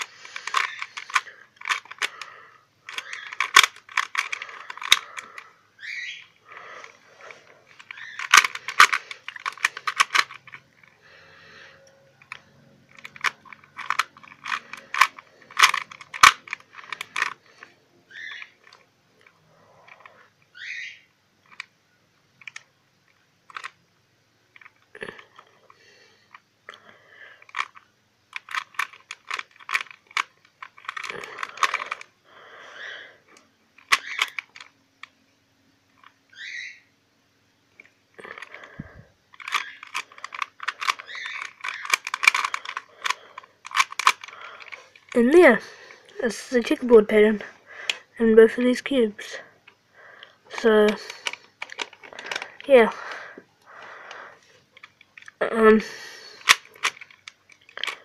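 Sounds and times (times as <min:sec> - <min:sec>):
plastic puzzle cube clicking: 0:00.0 - 0:11.0, 0:12.2 - 0:20.6, 0:21.4 - 0:21.7, 0:22.4 - 0:23.8, 0:27.4 - 0:32.1, 0:33.3 - 0:35.2, 0:37.8 - 0:53.3, 0:54.8 - 0:58.0.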